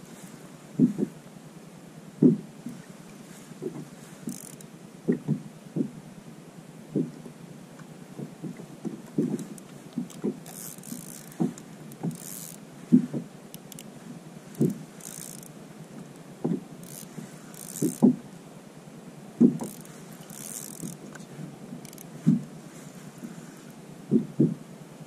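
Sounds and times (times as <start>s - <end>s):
waves knocking on kayak hull: 8.2s - 13.8s, 14.4s - 18.3s, 19.4s - 22.6s.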